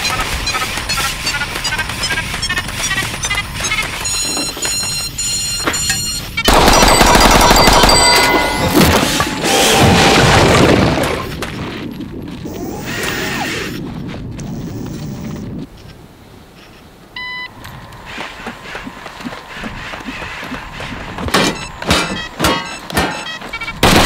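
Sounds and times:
rapid gunfire with booms: 0:06.5 - 0:11.8, 0:23.8 - 0:24.0.

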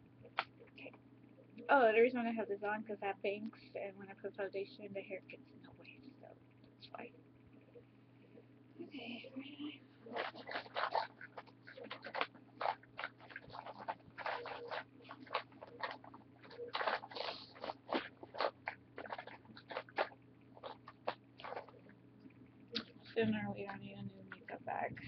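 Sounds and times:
faint low hum: 0:00.0 - 0:25.0
makeup items rustling and clicking: 0:10.1 - 0:21.9.

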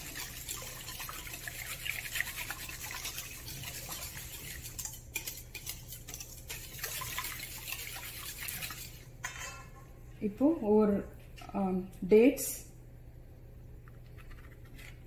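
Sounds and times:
whisk beating batter in bowl: 0:00.0 - 0:09.1.

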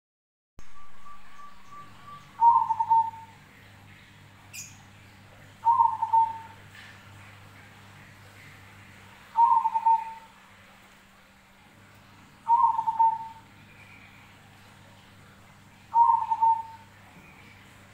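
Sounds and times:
faint low hum: 0:00.6 - 0:17.9
dove cooing: 0:00.8 - 0:03.4, 0:05.6 - 0:06.9, 0:09.3 - 0:10.4, 0:12.4 - 0:14.1, 0:15.8 - 0:17.5.

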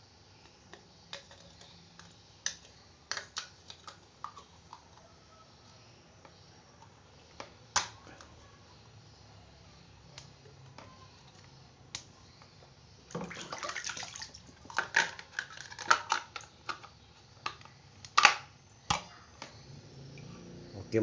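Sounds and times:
water sloshing in plastic basin: 0:13.1 - 0:14.6
plastic clicks and snaps: 0:14.7 - 0:19.6.

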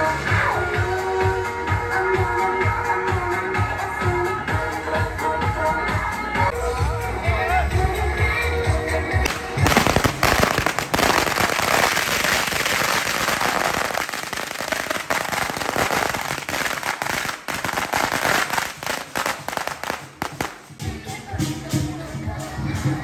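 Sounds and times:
firecrackers crackling: 0:09.2 - 0:21.8.

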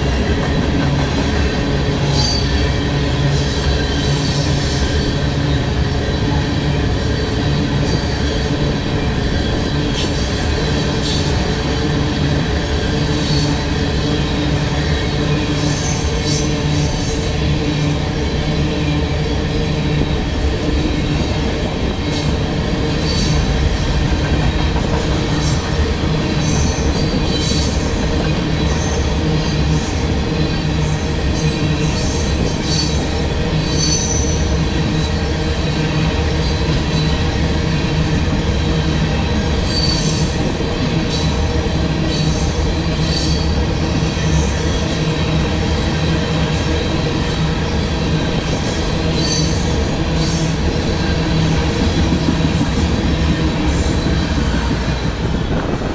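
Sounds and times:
steel wheels rumbling on rail: 0:00.0 - 0:55.9.

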